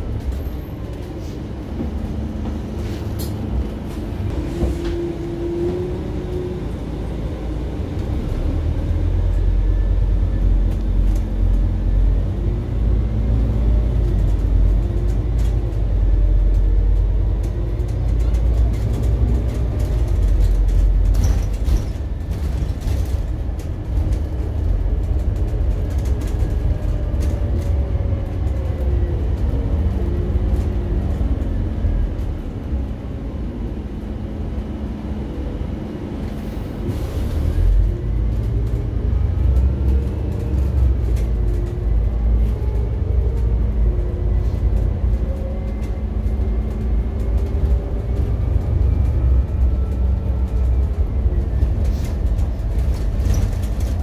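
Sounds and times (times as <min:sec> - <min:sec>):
bus engine rumble: 0:00.0 - 0:54.0
body rattles and clicks: 0:13.9 - 0:28.8, 0:44.4 - 0:54.0.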